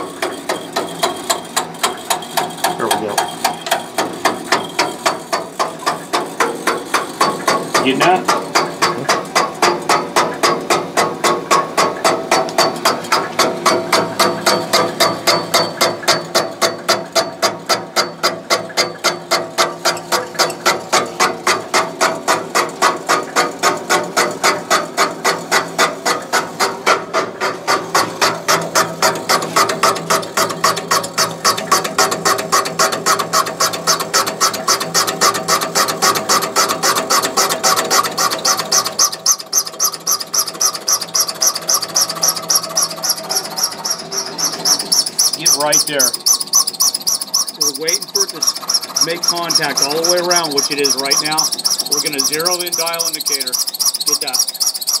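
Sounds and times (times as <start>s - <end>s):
machine hum: 0.0s - 55.0s
rhythmic cutter clicking: 0.0s - 55.0s.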